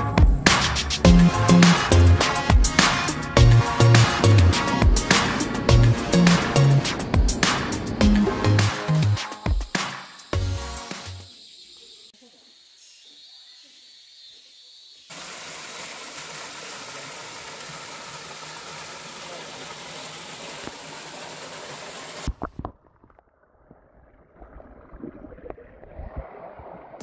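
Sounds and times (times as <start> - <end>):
waterfall pouring into pool: 15.1 - 26.6.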